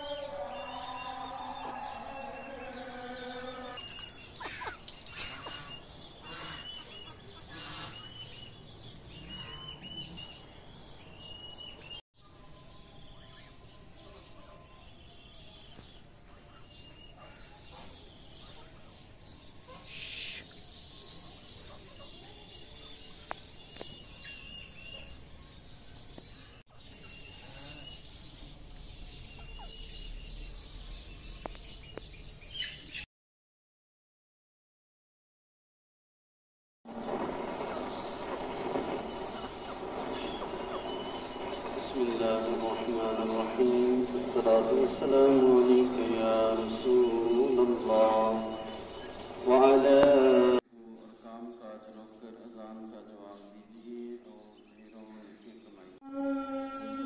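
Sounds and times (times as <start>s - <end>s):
birds chirping: 0.0s - 33.1s, 36.9s - 57.0s.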